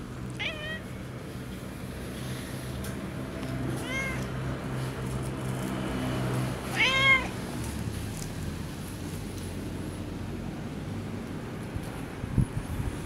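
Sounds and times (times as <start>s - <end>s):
cat meowing: 0.4s - 1.0s, 3.7s - 4.4s, 6.7s - 7.4s.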